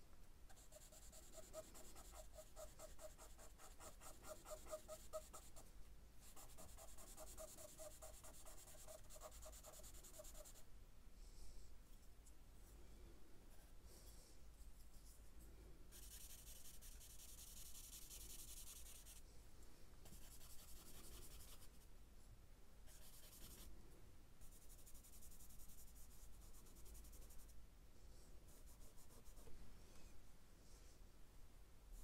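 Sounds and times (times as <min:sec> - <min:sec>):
charcoal scratching on paper: 0:00.5 - 0:05.6, 0:06.2 - 0:10.6, 0:15.9 - 0:19.2, 0:20.1 - 0:21.8, 0:22.9 - 0:23.7, 0:28.5 - 0:29.5.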